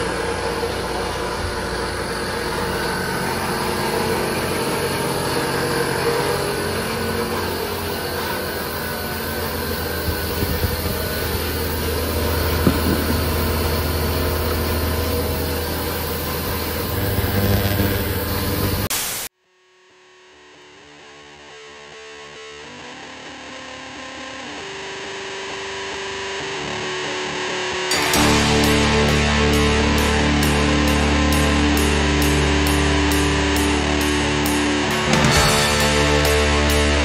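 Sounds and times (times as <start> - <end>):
engine running steadily: 0.0 - 18.9.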